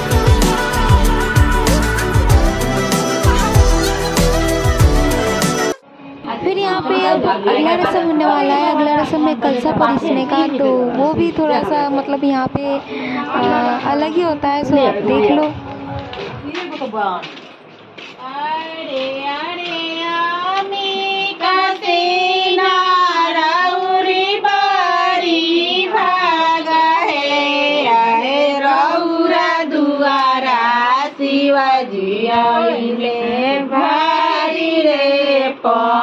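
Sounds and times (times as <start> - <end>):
woman singing: 6.7 - 16.3, 18.2 - 36.0.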